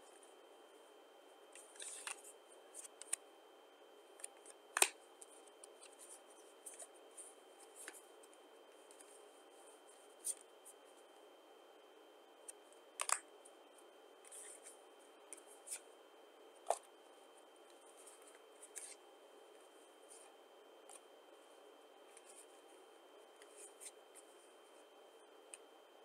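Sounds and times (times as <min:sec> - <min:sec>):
playing cards sliding and flicking: 0:01.6 - 0:03.2, 0:14.2 - 0:14.7, 0:18.1 - 0:19.0.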